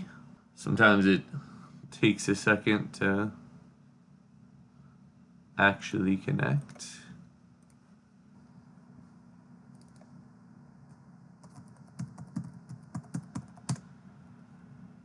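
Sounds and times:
keyboard typing: 9.7 - 10.1, 10.9 - 13.8.

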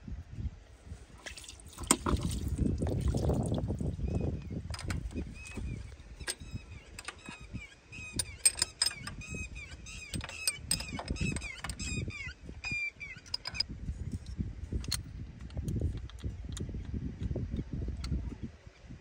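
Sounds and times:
bird calling: 4.0 - 13.6
spanner clicking on bolts: 4.7 - 17.3.

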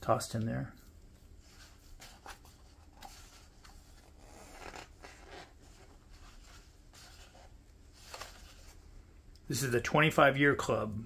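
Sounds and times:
page turning rustle: 1.5 - 8.8.

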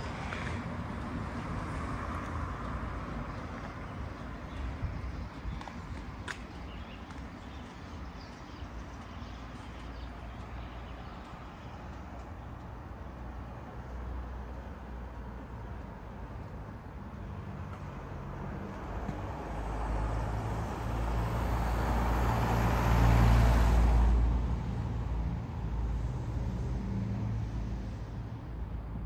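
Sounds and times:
low traffic rumble: 0.0 - 29.0
car driving past: 18.3 - 25.0.

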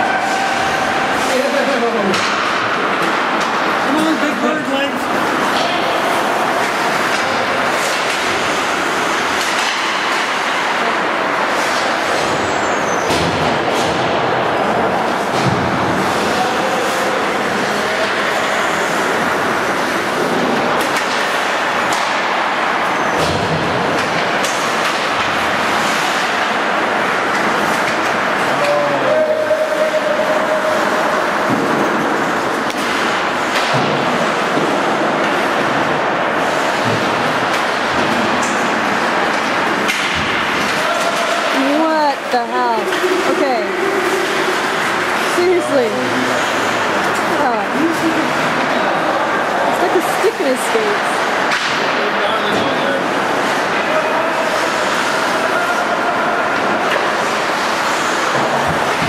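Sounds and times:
ice rink rushing noise: 0.0 - 59.0
sharp knocks of stick or puck: 39.4 - 41.6.

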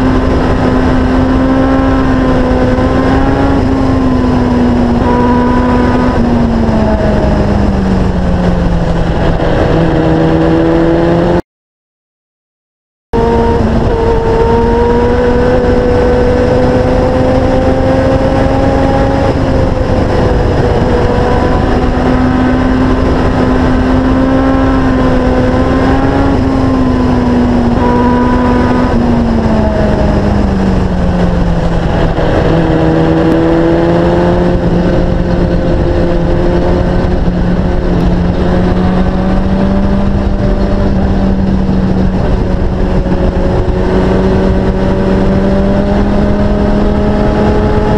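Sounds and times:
motorcycle engine running hard: 0.0 - 11.4, 13.1 - 47.9
wind rush: 0.0 - 11.4, 13.2 - 47.9.

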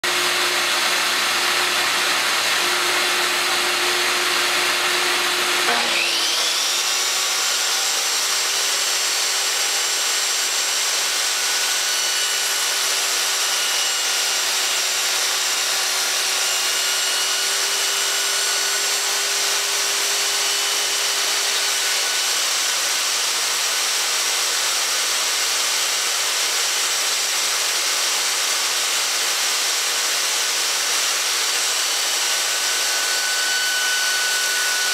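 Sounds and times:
table saw motor whining: 0.0 - 34.9.

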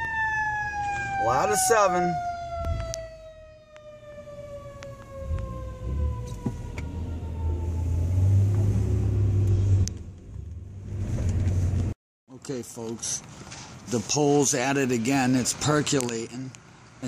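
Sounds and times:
fire truck siren winding down: 0.0 - 9.6.

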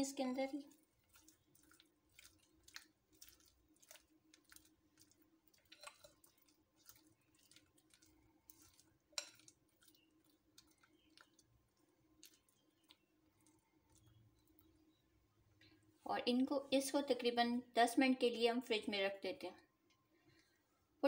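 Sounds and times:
spatula squishing cream in bowl: 0.0 - 15.9.

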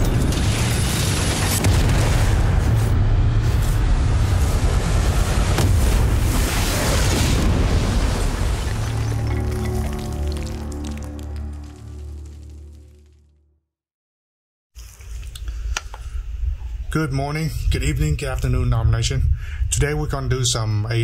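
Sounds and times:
explosion rumble: 0.0 - 12.6
dramatic music: 8.2 - 13.5.

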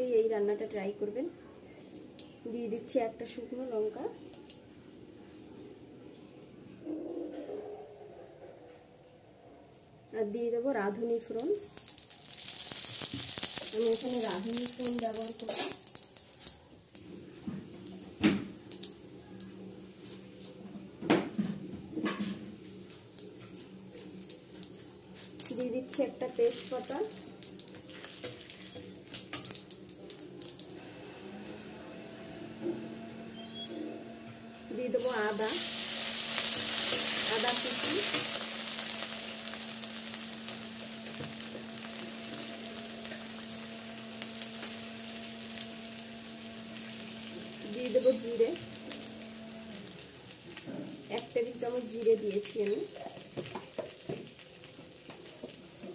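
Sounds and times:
seeds crackling in hot oil: 10.9 - 19.6, 22.6 - 31.6, 34.9 - 55.9.

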